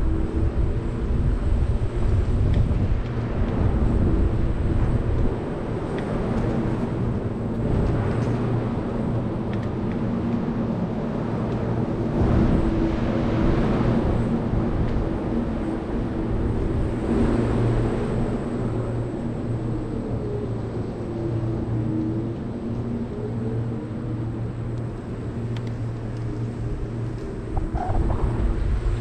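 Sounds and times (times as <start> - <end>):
constant low hum: 0.0 - 29.0.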